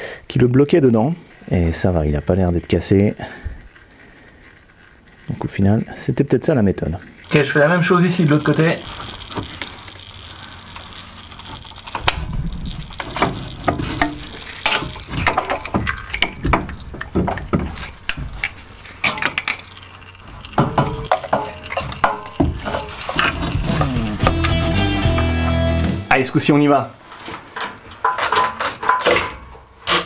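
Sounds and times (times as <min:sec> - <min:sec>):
low rumble: 0:12.0 - 0:14.5.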